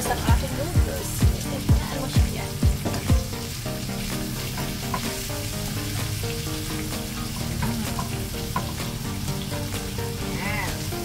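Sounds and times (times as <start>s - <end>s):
vegetables sizzling in a wok: 0.0s - 11.0s.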